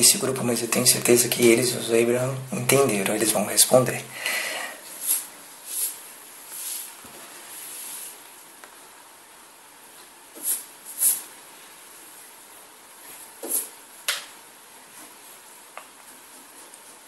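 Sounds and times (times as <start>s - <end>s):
faint recording hiss: 0.0s - 17.0s
person taking sharp breaths: 4.1s - 5.2s.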